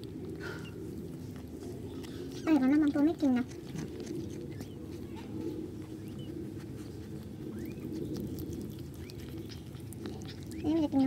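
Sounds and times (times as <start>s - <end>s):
cat licking kitten: 0.0s - 11.0s
cat purring rumble: 0.0s - 11.0s
kitten squeaks: 3.4s - 6.4s, 7.5s - 11.0s.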